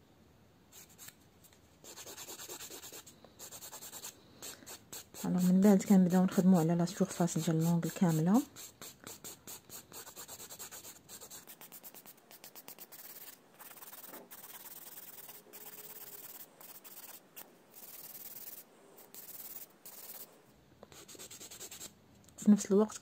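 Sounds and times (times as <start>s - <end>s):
nail file rasping: 7.2s - 20.3s.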